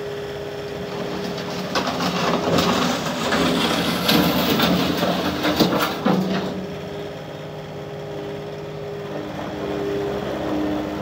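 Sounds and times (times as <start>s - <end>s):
diesel engine running: 0.0s - 11.0s
sharp knocks and clatter: 0.8s - 6.9s.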